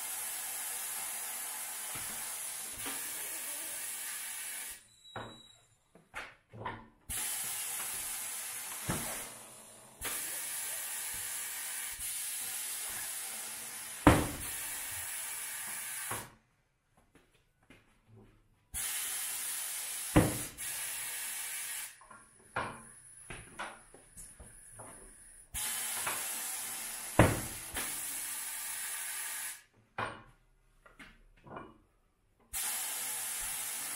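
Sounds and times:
compressed air hissing: 0:07.1 - 0:16.2, 0:18.8 - 0:21.9, 0:24.5 - 0:29.6, 0:32.6 - 0:33.9.

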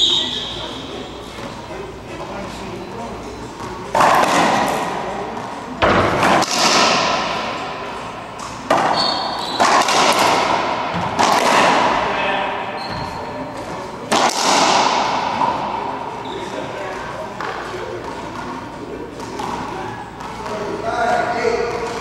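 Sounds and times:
racquetball cracking off walls: 0:03.6 - 0:05.0, 0:05.8 - 0:07.6, 0:08.4 - 0:12.1, 0:14.1 - 0:15.8.

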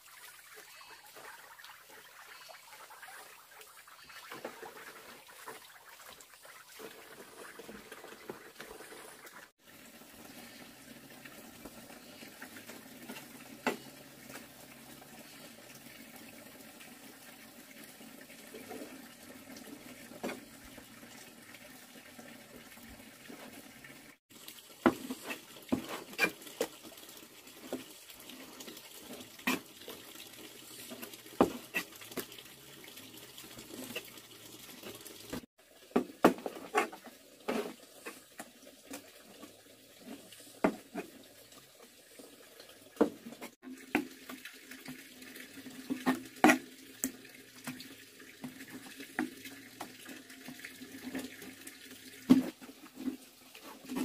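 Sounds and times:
water running and splashing: 0:00.0 - 0:54.0.

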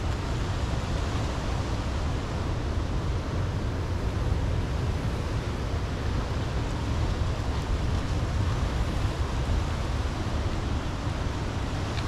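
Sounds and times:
surf washing on rocks: 0:00.0 - 0:12.0.

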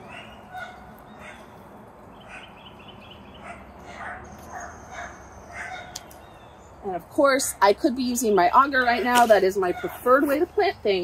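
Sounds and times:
distant animal calls: 0:00.0 - 0:01.6, 0:02.2 - 0:06.6
birdsong: 0:00.0 - 0:11.0
bird trill: 0:02.1 - 0:06.7.

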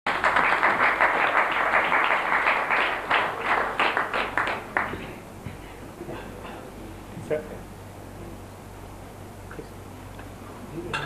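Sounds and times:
audience applause: 0:00.1 - 0:05.2.

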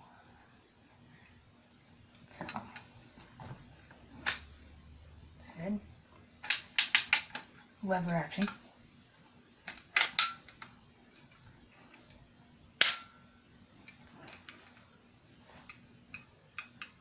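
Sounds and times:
loud metal snap with ring: 0:12.8 - 0:13.2.

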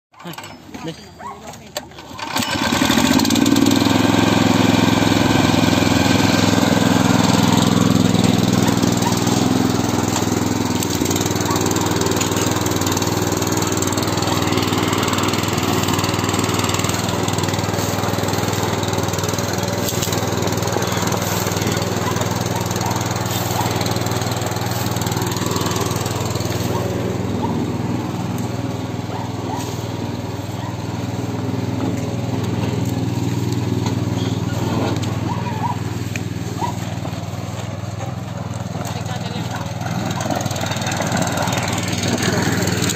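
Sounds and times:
small engine running: 0:00.2 - 0:42.9.

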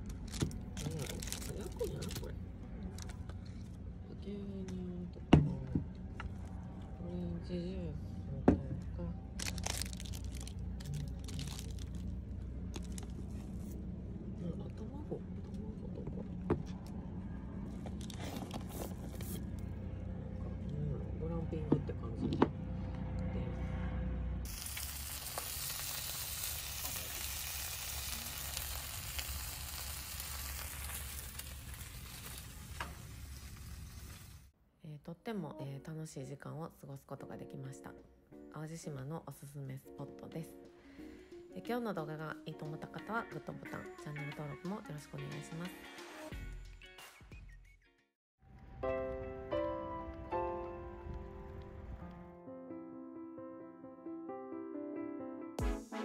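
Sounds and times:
plastic packaging crinkling: 0:00.0 - 0:03.2, 0:09.4 - 0:13.7, 0:24.5 - 0:34.4
low hum: 0:00.0 - 0:34.5
food sizzling on griddle: 0:24.5 - 0:34.5.

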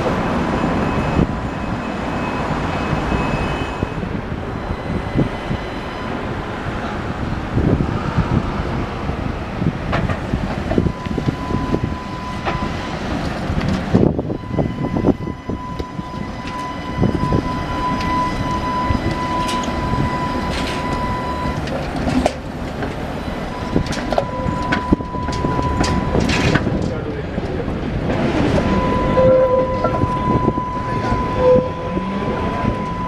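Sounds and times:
steady high tone: 0:00.0 - 0:07.2, 0:14.3 - 0:21.8, 0:28.4 - 0:33.0
tram wheels rumbling over rail joints: 0:00.0 - 0:33.0.

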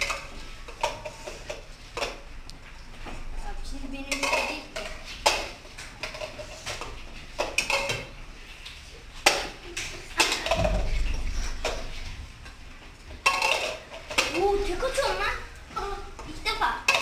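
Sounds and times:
plastic cups tapping on a board: 0:04.1 - 0:08.2, 0:09.2 - 0:11.9, 0:16.8 - 0:17.0.

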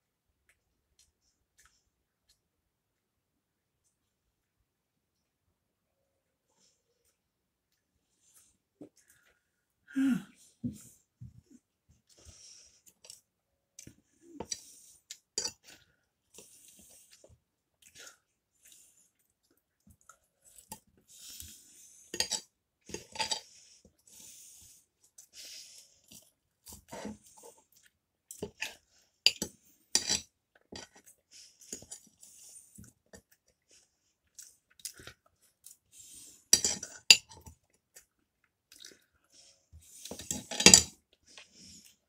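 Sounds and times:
man chewing and crunching: 0:30.5 - 0:40.1.

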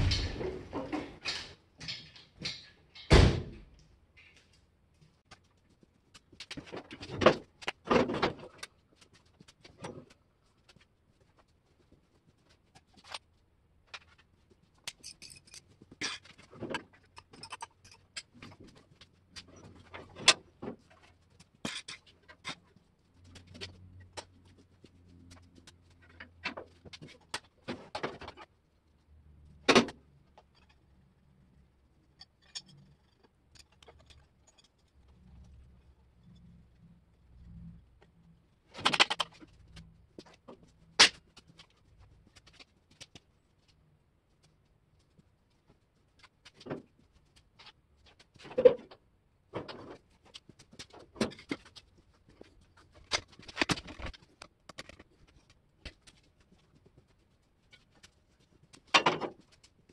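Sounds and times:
tools and parts clanking: 0:00.0 - 0:04.4, 0:06.2 - 0:10.2, 0:14.8 - 0:24.4, 0:25.3 - 0:28.5, 0:32.0 - 0:36.5, 0:38.7 - 0:43.2, 0:47.6 - 0:56.7, 0:58.7 - 0:59.9.

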